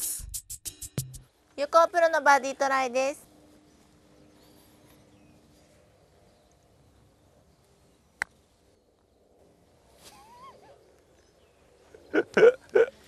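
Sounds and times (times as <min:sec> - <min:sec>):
wavering bird call: 0:10.0 - 0:10.8.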